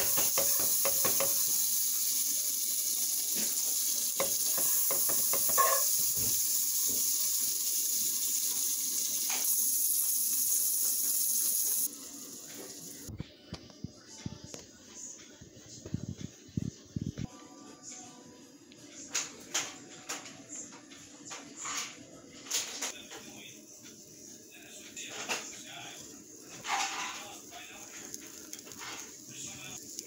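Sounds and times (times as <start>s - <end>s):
butter sizzling in a frying pan: 0.0s - 13.1s, 23.2s - 30.0s.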